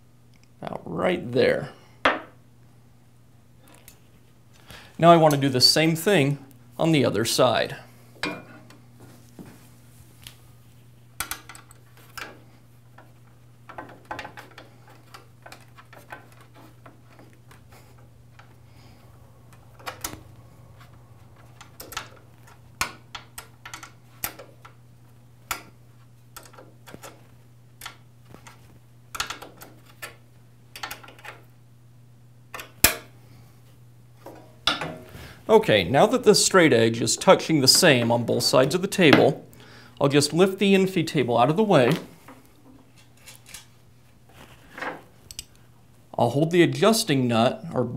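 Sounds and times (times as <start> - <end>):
steady low hum: 0.0 - 47.9.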